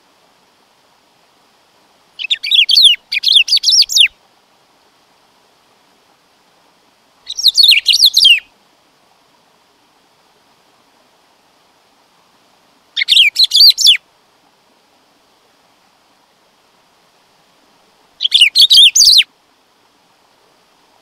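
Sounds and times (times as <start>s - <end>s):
bird whistling song: 2.2s - 4.1s, 7.3s - 8.5s, 13.0s - 14.0s, 18.2s - 19.3s.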